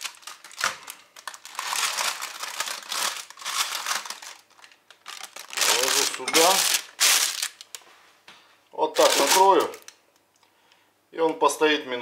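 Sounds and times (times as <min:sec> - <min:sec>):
baking parchment crinkling: 0:00.0 - 0:07.9, 0:08.9 - 0:10.0.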